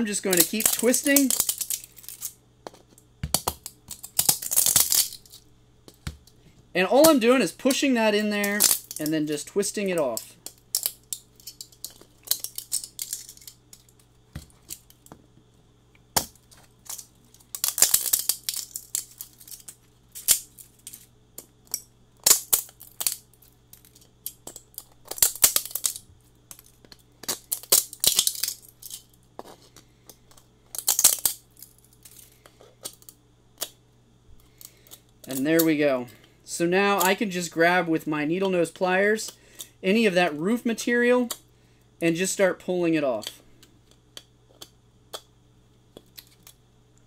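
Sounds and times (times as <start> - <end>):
plastic crackling and snapping: 0.3 - 6.4, 10.0 - 15.2, 16.2 - 33.8.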